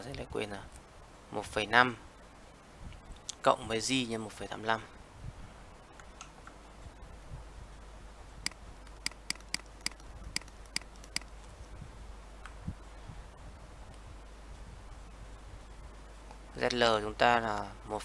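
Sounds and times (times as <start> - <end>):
faint low hum: 0.0 - 18.0
sharp clicks of computer controls: 8.4 - 11.5.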